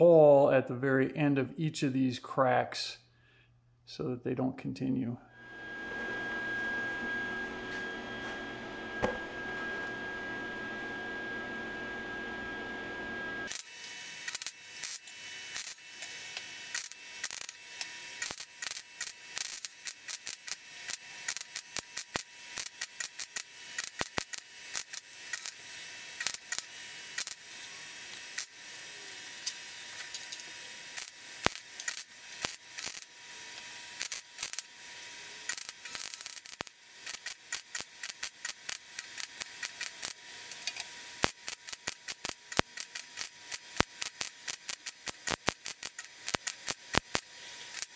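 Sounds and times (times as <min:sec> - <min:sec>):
welder arc crackling and popping: 0:13.4 - 0:47.9
welder hiss: 0:29.3 - 0:47.9.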